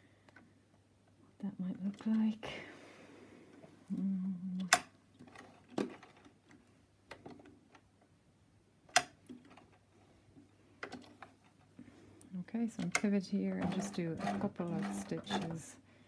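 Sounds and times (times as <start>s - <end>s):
sewing machine stitching: 13.4s - 15.8s.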